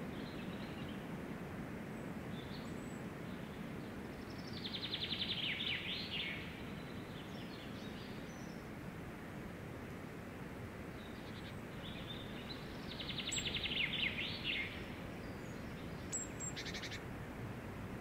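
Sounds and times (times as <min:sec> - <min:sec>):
low outdoor background noise: 0:00.0 - 0:18.0
faint bird chirps: 0:11.0 - 0:17.0
songbird trilling: 0:11.2 - 0:17.0.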